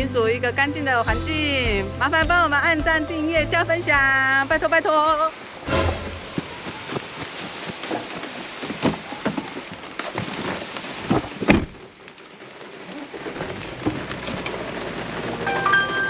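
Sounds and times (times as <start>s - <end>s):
heavy rain falling: 3.5s - 16.0s.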